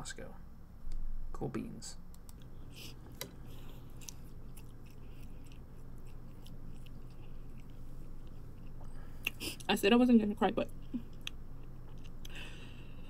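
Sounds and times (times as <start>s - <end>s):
steady low hum: 0.0s - 13.0s
small mouth clicks: 2.2s - 9.7s
chewing spaghetti: 2.4s - 9.8s, 10.6s - 13.0s.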